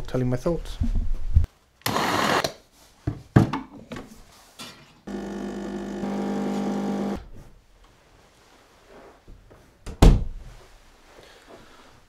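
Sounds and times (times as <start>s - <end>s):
espresso machine pump humming: 5.1s - 7.2s.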